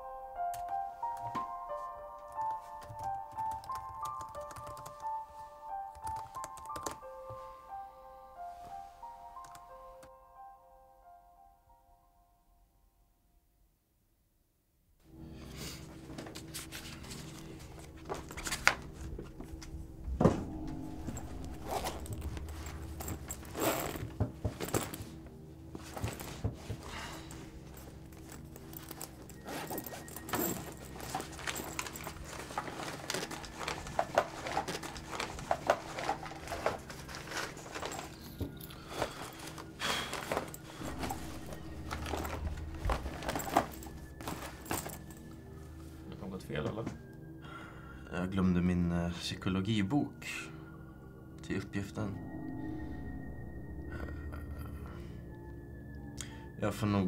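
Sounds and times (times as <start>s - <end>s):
low music drone: 15.1s - 57.0s.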